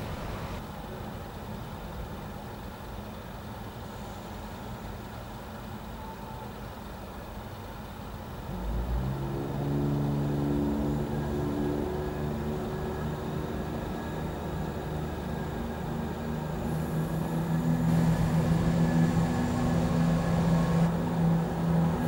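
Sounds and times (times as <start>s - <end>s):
vehicle engine humming: 0.0s - 0.7s, 8.5s - 22.0s
road traffic idling: 0.0s - 5.7s, 9.7s - 22.0s.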